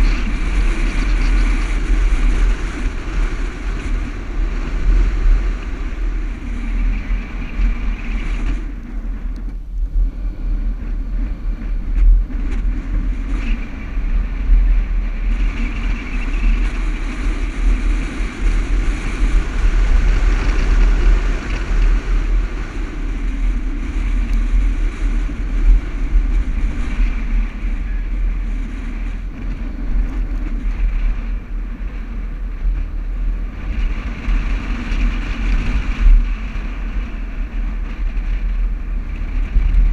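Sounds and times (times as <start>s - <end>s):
vehicle engine and tyre rumble: 0.0s - 39.9s.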